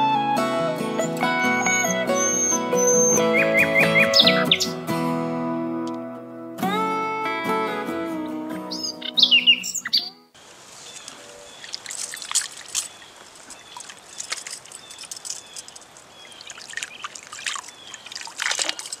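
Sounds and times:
hands splashing in water: 11.6 - 19.0.

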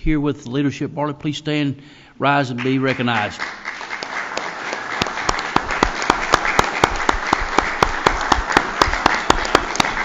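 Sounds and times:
close sharp hand claps: 2.6 - 10.0
crowd applauding: 2.6 - 10.0.

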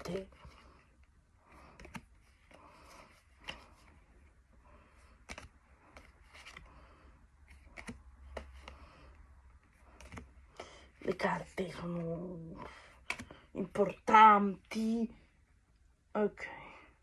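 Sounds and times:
trading cards rustling and sliding: 0.0 - 13.5.

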